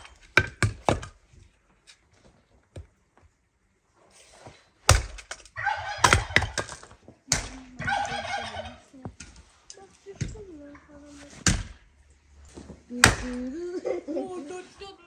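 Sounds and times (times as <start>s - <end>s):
chicken calling: 5.6s - 6.4s, 7.7s - 9.0s.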